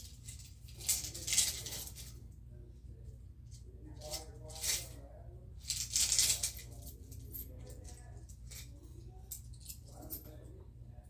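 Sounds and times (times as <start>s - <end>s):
coins rattling and clinking: 0.0s - 2.1s, 4.0s - 5.0s, 5.6s - 8.7s.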